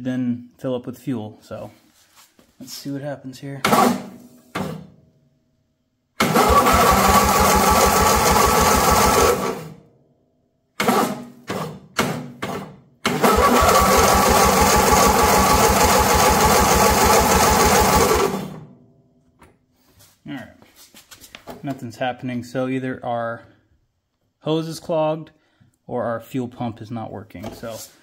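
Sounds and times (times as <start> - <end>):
engine starter cranking: 3.6 - 4.8, 6.2 - 9.8, 10.8 - 18.7.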